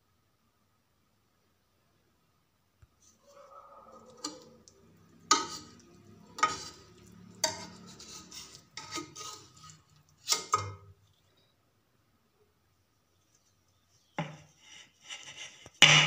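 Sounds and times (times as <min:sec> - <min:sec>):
metal spatula scraping a wok: 0:03.0 - 0:11.0, 0:14.2 - 0:16.0.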